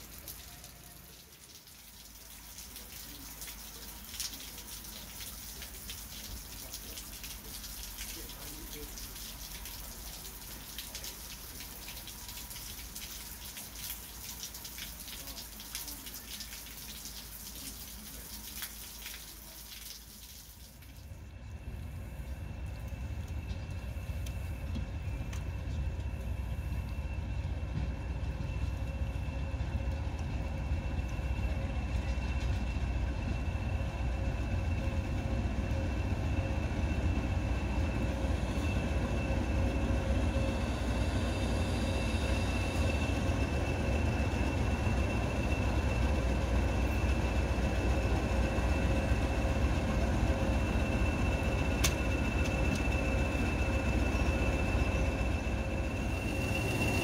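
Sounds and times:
locomotive high whine: 20.7s - 57.0s
diesel locomotive rumble: 21.0s - 57.0s.

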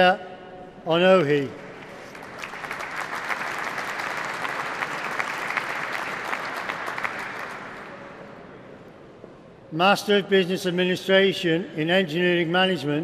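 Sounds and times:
audience applauding: 1.8s - 8.0s.

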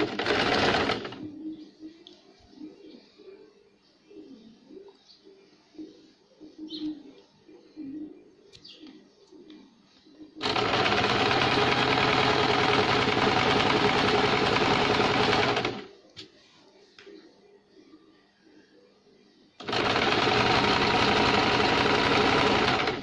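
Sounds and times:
sewing machine running: 0.0s - 1.2s, 10.4s - 15.9s, 19.6s - 23.0s.

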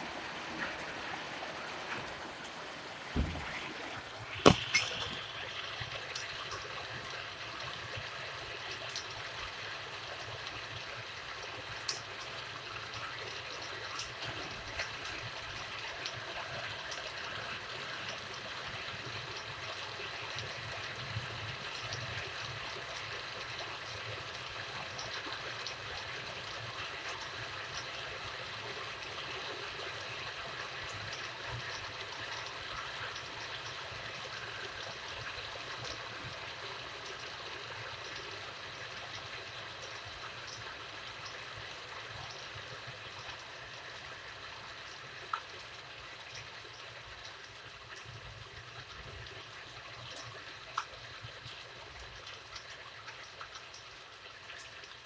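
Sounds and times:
steady rain falling: 0.0s - 55.0s
low thump: 3.1s - 3.7s
sharp knock: 3.2s - 3.6s, 4.4s - 5.2s.

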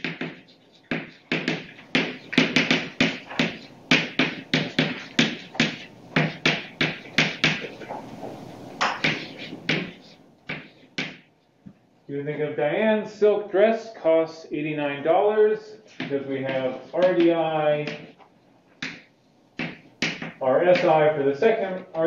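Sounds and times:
chalk writing on blackboard: 0.0s - 11.2s.

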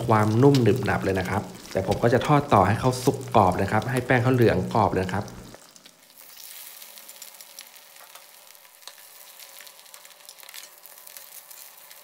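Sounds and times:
batter frying in hot oil: 0.0s - 12.0s.

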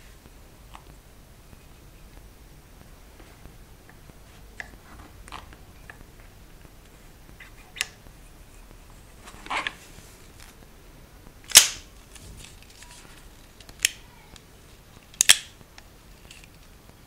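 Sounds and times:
revolver metal clicks: 15.1s - 16.6s.

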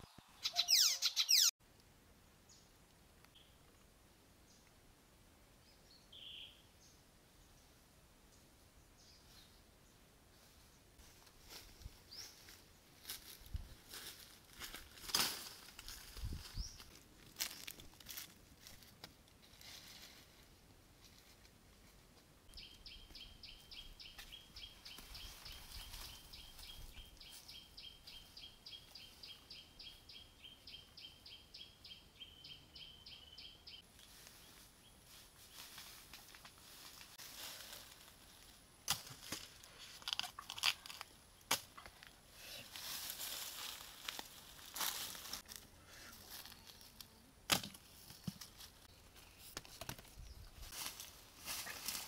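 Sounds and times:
high rapid chirping call: 0.4s - 1.5s
footsteps crunching through dry leaves: 11.0s - 21.3s, 24.2s - 27.5s, 34.0s - 40.2s, 42.6s - 47.0s, 50.4s - 52.0s.

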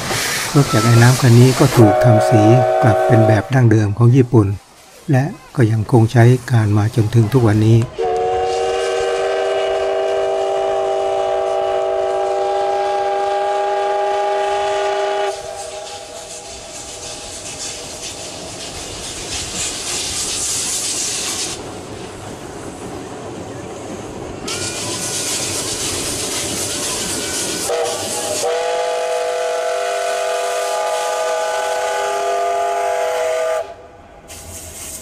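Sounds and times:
steam hissing: 0.0s - 23.0s, 24.1s - 35.0s
steam whistle chord: 1.8s - 3.5s, 8.0s - 16.5s, 27.2s - 33.9s.

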